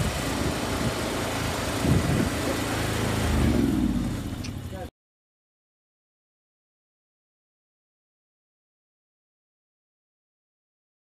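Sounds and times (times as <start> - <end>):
engine idling: 0.0 - 4.9.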